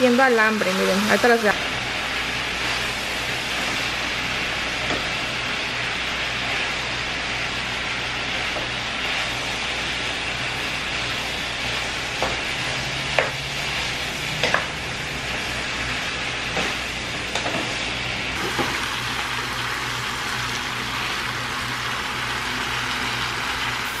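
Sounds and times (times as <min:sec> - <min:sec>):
food sizzling in a frying pan: 0:00.0 - 0:24.0
wooden spoon knocking and scraping pan: 0:12.2 - 0:12.5, 0:14.4 - 0:14.8.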